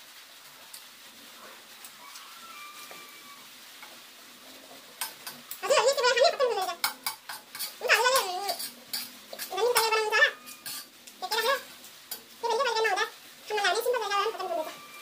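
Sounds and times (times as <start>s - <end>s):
animal calling with wavering pitch: 1.9s - 3.5s, 9.8s - 10.7s, 14.0s - 15.0s
metal spoon scraping steel plate: 6.8s - 12.2s.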